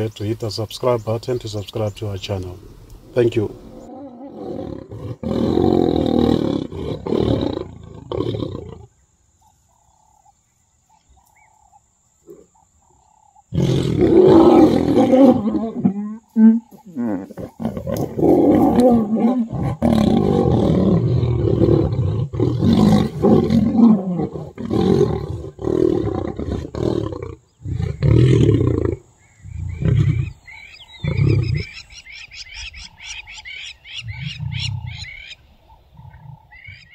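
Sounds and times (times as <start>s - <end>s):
lions growling and snarling: 3.0s - 8.9s, 12.3s - 30.4s.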